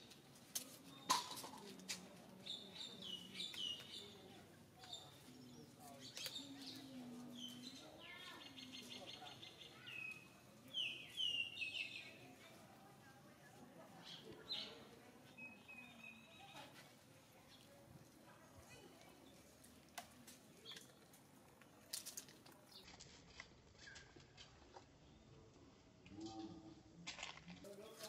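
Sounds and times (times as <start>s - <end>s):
birds chirping: 2.4s - 12.4s.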